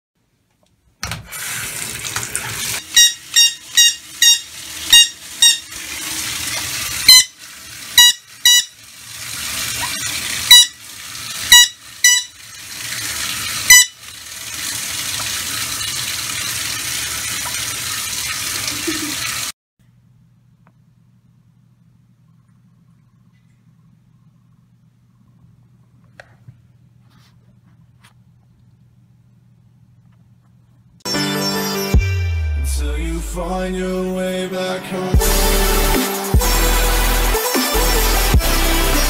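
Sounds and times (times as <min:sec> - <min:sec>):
water running from bathtub tap: 0:01.2 - 0:19.6.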